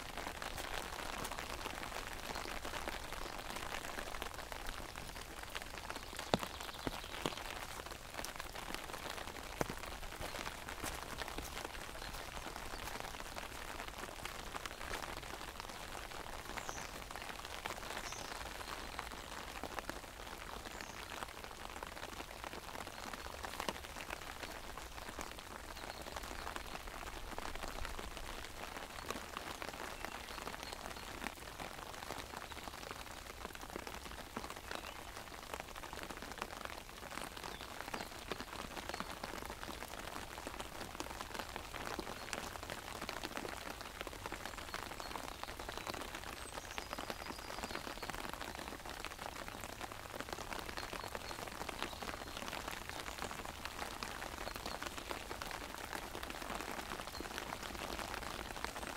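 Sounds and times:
rain on an umbrella: 0:00.0 - 0:58.9.

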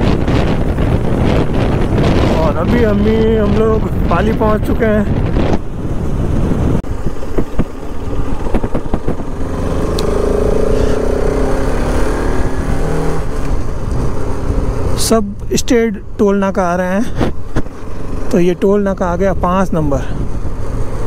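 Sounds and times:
motorcycle engine running: 0:00.0 - 0:15.3
wind rushing over microphone: 0:00.0 - 0:21.0.

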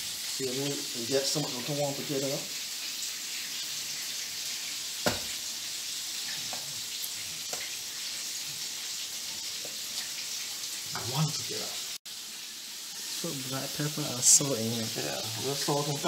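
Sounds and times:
oil sizzling: 0:00.0 - 0:16.0
sharp knock: 0:05.0 - 0:05.3.

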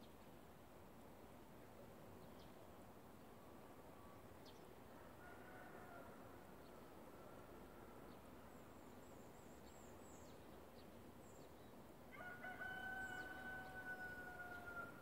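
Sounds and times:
small birds chirping faintly: 0:00.0 - 0:15.0
rooster crowing faintly: 0:04.9 - 0:08.1, 0:12.1 - 0:15.0.

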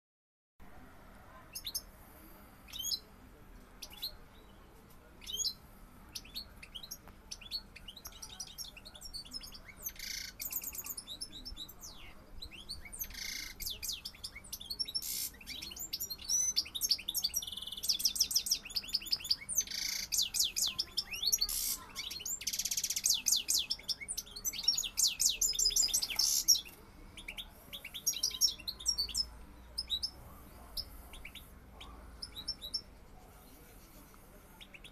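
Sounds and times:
goldfinch twittering song: 0:06.2 - 0:30.2.

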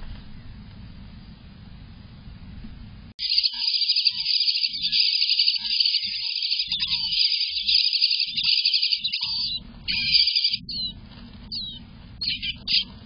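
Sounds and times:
low rumble: 0:00.0 - 0:03.2, 0:09.3 - 0:13.0
nestlings begging calls: 0:03.2 - 0:12.9.

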